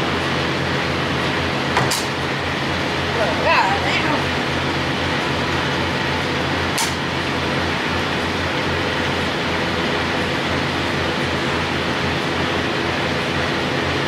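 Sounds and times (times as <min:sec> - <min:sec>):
fuel pump humming: 0:00.0 - 0:14.0.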